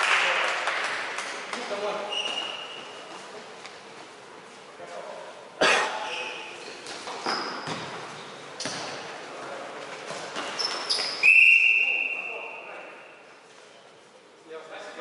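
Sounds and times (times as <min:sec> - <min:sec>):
ball thudding in a hall: 0:06.8 - 0:09.2
long whistle blast: 0:11.2 - 0:12.3.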